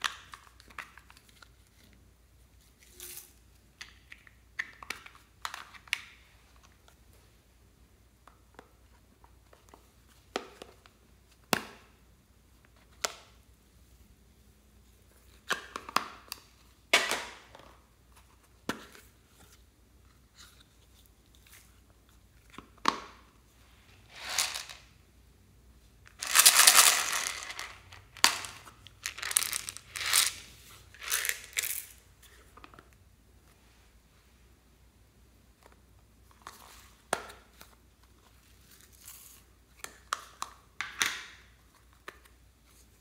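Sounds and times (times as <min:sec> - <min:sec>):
plastic beads rattling into tray: 0:24.1 - 0:24.9, 0:26.1 - 0:32.0.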